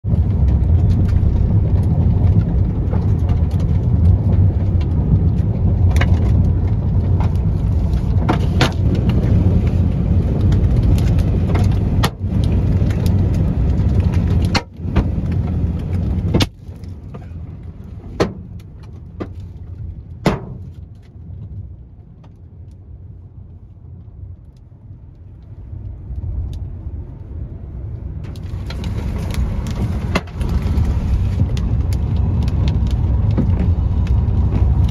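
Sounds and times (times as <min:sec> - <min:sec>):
road and engine rumble: 0:00.0 - 0:34.9
hailstones striking car: 0:00.1 - 0:17.4, 0:18.1 - 0:19.5, 0:20.2 - 0:20.8, 0:28.2 - 0:34.9.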